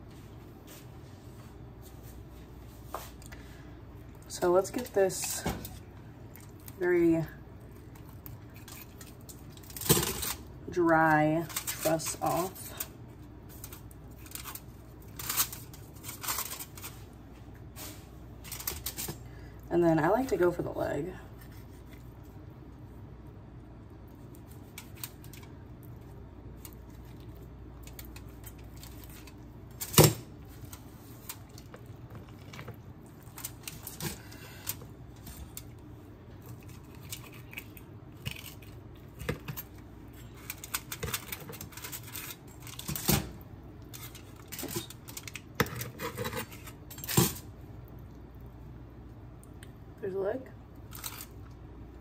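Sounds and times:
cutlery scraping a baking sheet: 45.6s - 47.3s.

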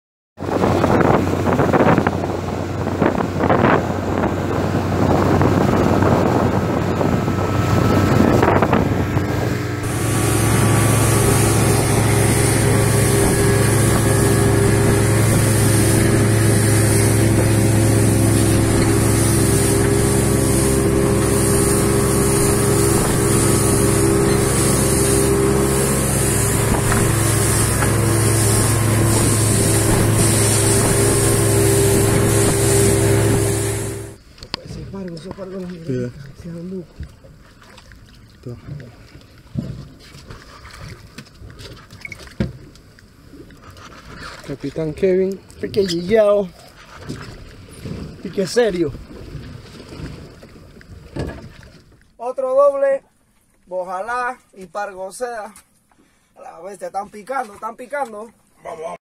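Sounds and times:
wind buffeting microphone: 0.4s - 37.2s
boat engine drone: 0.4s - 52.2s
water rushing past hull: 0.4s - 54.3s.

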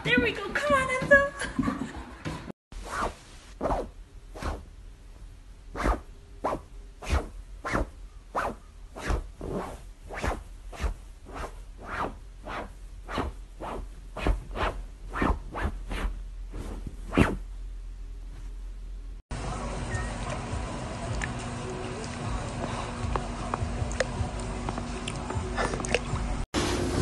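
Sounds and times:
footsteps on hardwood floor: 0.0s - 2.5s.

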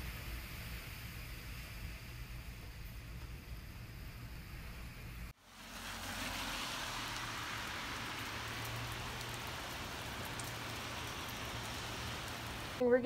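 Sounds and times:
rain falling on a wet street: 5.4s - 13.0s.

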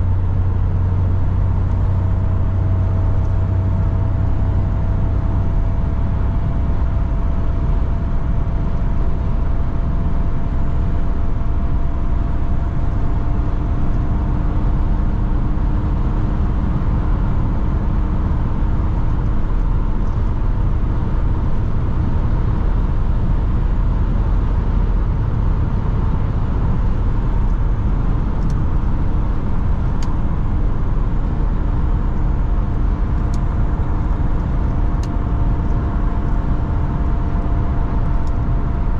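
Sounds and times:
diesel engine drone: 0.0s - 38.9s
road and tyre rumble: 0.0s - 38.9s.

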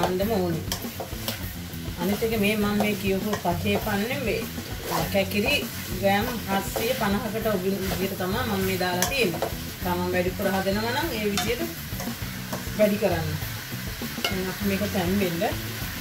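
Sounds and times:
curry sizzling: 0.0s - 16.0s
wooden spoon scraping a wok: 0.0s - 16.0s.

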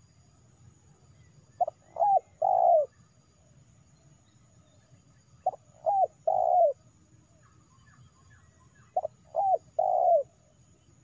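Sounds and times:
dove cooing: 1.6s - 3.0s, 5.4s - 6.8s, 9.0s - 10.4s.

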